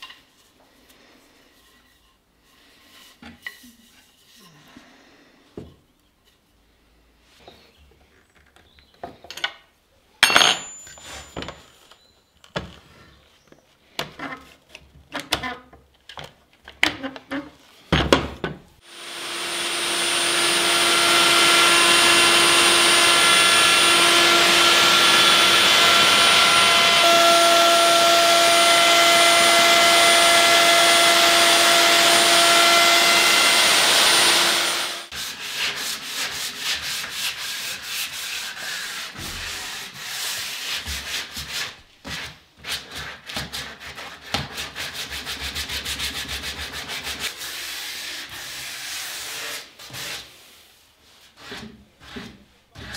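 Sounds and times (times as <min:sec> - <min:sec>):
electric sander on wood: 0:18.8 - 0:35.2.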